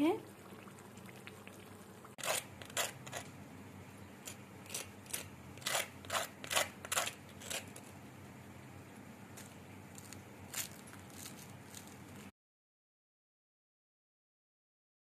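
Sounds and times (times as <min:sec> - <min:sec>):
fork scraping crispy crust: 0:02.2 - 0:03.4, 0:04.2 - 0:08.0, 0:09.4 - 0:12.2.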